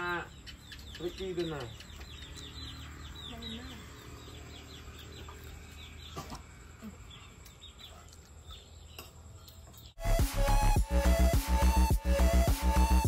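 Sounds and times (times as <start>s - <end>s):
chickens clucking: 0.0s - 10.0s.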